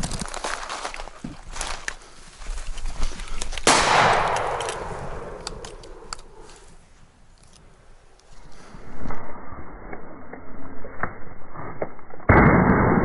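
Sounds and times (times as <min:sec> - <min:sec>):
light clicks: 0:03.2 - 0:06.7
shotgun shot echoing: 0:03.6 - 0:06.6.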